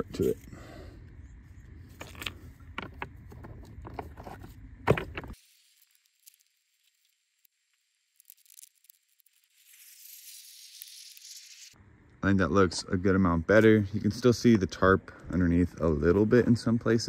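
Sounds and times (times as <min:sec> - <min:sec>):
rocks clacking together: 0:01.9 - 0:05.4.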